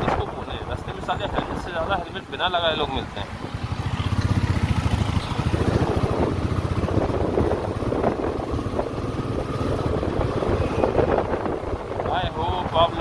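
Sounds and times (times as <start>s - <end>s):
single-cylinder motorcycle engine running: 3.3s - 13.0s.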